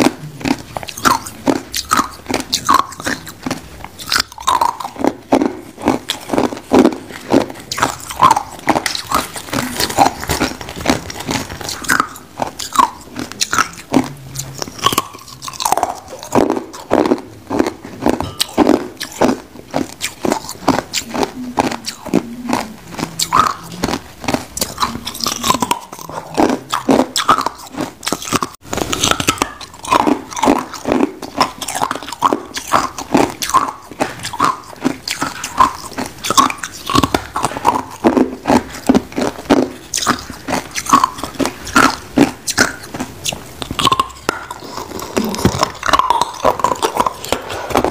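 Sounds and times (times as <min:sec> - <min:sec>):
ice crunching while chewed: 0:00.0 - 0:47.9.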